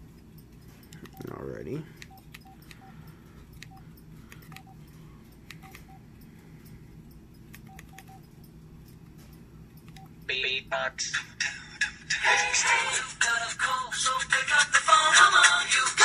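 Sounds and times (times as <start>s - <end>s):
phone key beeps: 0.3s - 6.1s, 7.0s - 10.4s.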